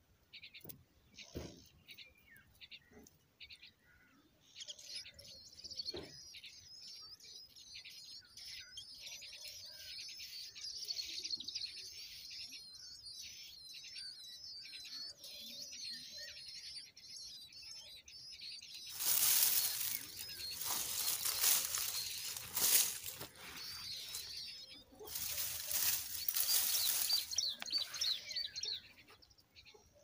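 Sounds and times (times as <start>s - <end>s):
nestlings chirping: 16.2s - 29.7s
wings flapping and nest rustling: 18.9s - 27.9s.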